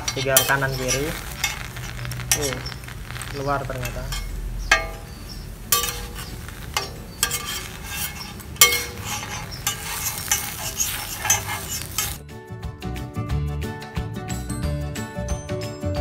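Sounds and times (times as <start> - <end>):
food sizzling on a griddle: 0.0 - 12.2
spatula scraping and clinking metal: 0.0 - 12.2.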